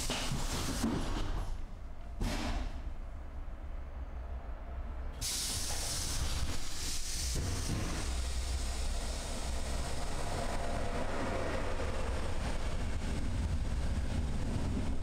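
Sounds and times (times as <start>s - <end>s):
train rumbling: 0.0s - 15.0s
compressed air hiss: 5.2s - 10.0s.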